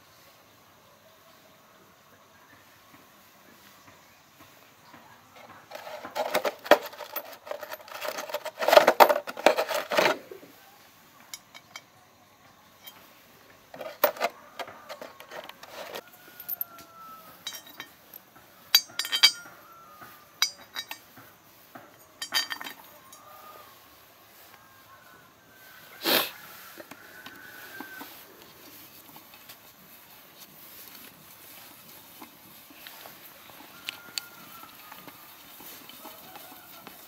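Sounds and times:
metal engine parts clinking: 5.6s - 10.2s, 11.3s - 12.0s, 12.8s - 16.7s, 17.3s - 21.3s, 22.0s - 23.2s.

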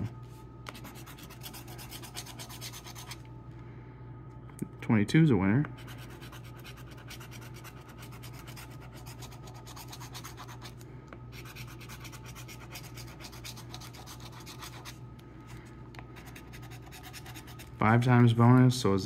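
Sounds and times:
coin scratching a ticket: 0.8s - 3.2s, 5.8s - 10.7s, 11.4s - 15.0s, 16.2s - 17.8s.

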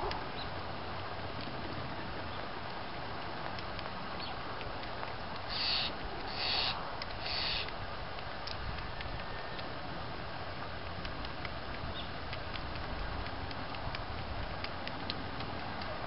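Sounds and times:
beak tapping on gravel: 3.4s - 9.7s
harsh bird calls: 5.5s - 7.7s.

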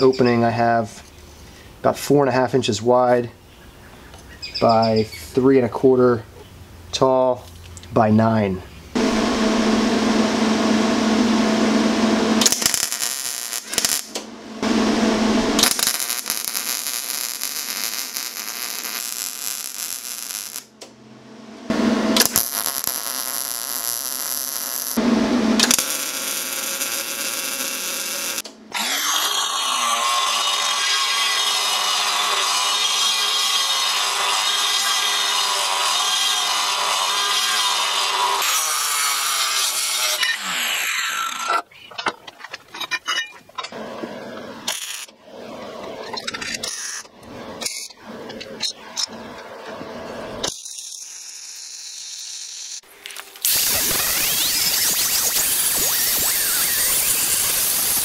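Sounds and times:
angle grinder running: 9.0s - 20.7s, 21.7s - 40.2s
welder crackling: 11.6s - 21.0s, 21.7s - 38.8s, 44.6s - 45.2s, 50.3s - 58.0s.

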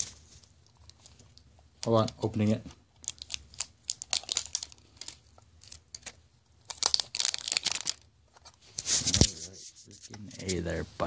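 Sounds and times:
packaging tearing and crinkling: 3.0s - 8.5s.

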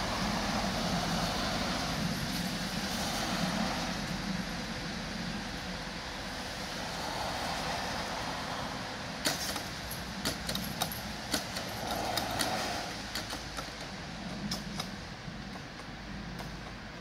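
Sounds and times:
steady background hiss: 0.0s - 17.0s.

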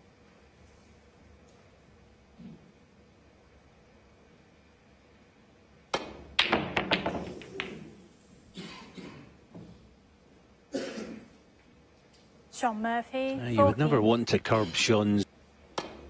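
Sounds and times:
cue tip striking ball: 5.9s - 8.0s
snooker balls colliding: 5.9s - 8.2s, 15.7s - 16.0s.

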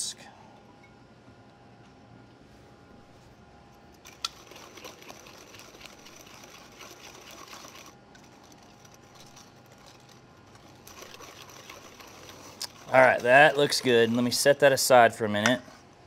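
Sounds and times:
whisk scraping metal bowl: 4.1s - 14.8s.

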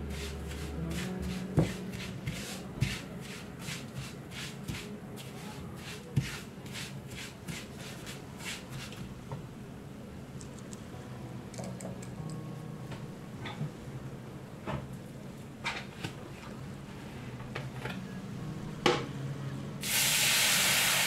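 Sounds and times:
spatula swishing in a frying pan: 0.1s - 9.0s.

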